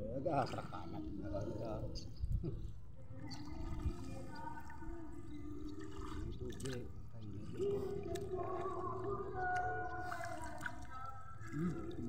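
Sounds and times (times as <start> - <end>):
water sloshing around legs: 3.0 - 12.0.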